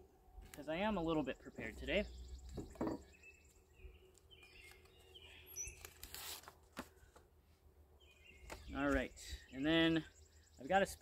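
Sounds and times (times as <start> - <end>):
faint bird chirps: 1.2 - 6.0
plate knocking on table: 2.6 - 3.0.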